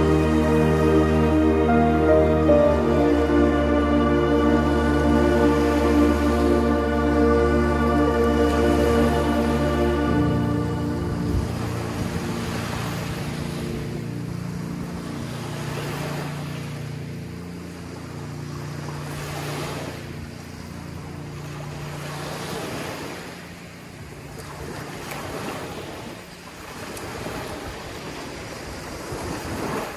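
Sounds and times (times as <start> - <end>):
low steady hum: 0.0 - 15.7
small waves breaking on beach: 8.3 - 29.9.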